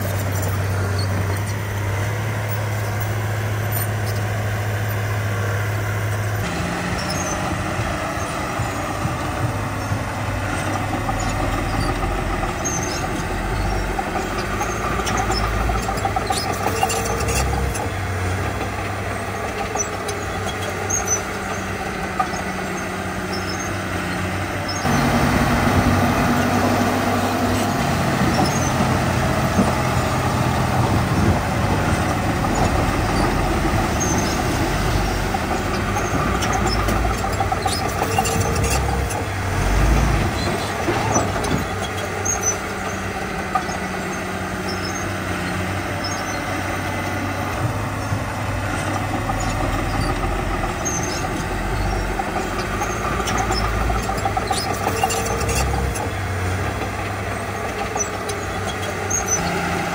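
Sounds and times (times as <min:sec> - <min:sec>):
short high squeaks: 0:00.0 - 0:05.1, 0:07.0 - 0:07.5, 0:10.6 - 0:18.0, 0:19.2 - 0:25.1, 0:27.2 - 0:28.8, 0:32.0 - 0:46.5, 0:48.8 - 0:56.2, 0:57.6 - 0:59.7
diesel machinery engines running: 0:00.0 - 0:59.9.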